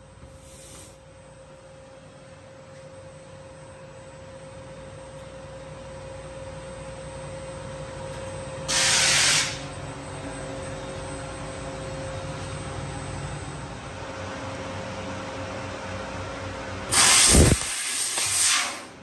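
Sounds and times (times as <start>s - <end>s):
compressed gas hissing: 0.3s - 1.0s, 8.7s - 9.6s, 16.9s - 18.9s
laser cutter humming and whining: 1.1s - 18.9s.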